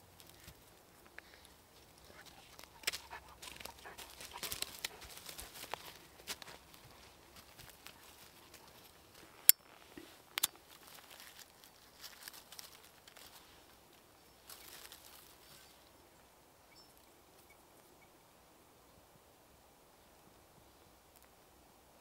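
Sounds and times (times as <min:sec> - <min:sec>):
rustling and crinkling: 0:00.0 - 0:16.0.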